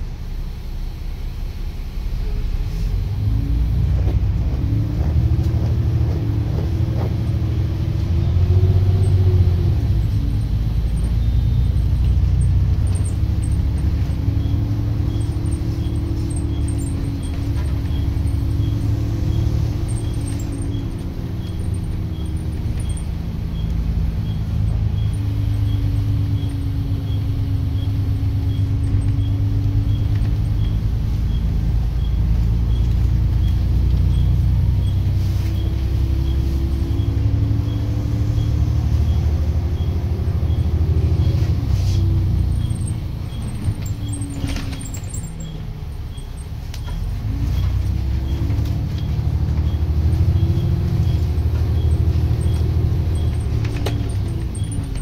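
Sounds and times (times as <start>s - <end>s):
bus engine droning: 0.0s - 55.0s
faint regular ticking: 6.6s - 36.4s, 42.1s - 55.0s.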